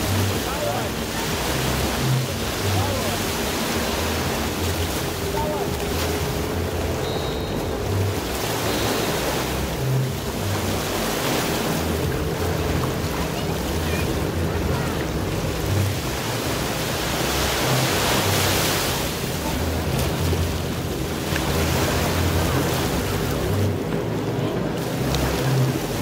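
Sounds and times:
surf washing up a beach: 0:00.0 - 0:26.0.

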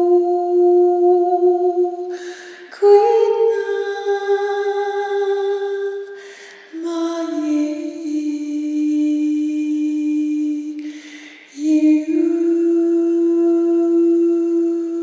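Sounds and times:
person singing long notes: 0:00.0 - 0:02.2
breath: 0:02.1 - 0:02.7, 0:06.2 - 0:06.8, 0:10.8 - 0:11.6.

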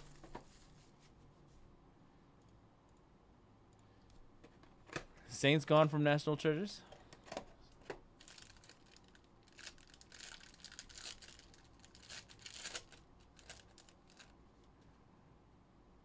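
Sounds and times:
foil wrapper tearing and crinkling: 0:08.2 - 0:14.3.

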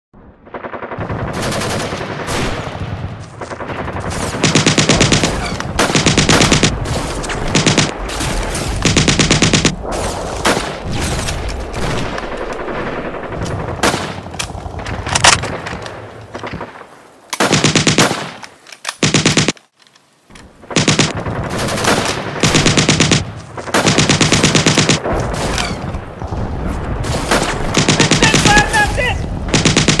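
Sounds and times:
automatic gunfire bursts: 0:03.7 - 0:06.8, 0:07.5 - 0:07.9, 0:08.8 - 0:09.8, 0:17.4 - 0:18.3, 0:19.0 - 0:19.6, 0:20.7 - 0:25.0, 0:27.3 - 0:28.9, 0:29.5 - 0:30.0.

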